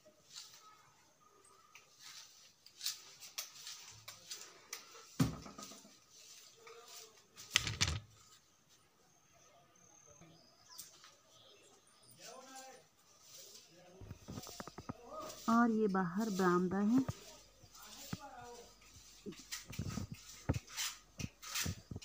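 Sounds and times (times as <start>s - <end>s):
rustling and scraping: 1.8s - 8.8s, 12.2s - 22.0s.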